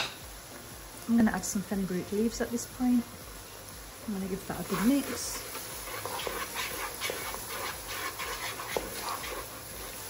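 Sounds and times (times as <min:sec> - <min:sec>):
sauce sizzling: 0:00.0 - 0:10.0
wooden spatula scraping wok: 0:04.4 - 0:10.0.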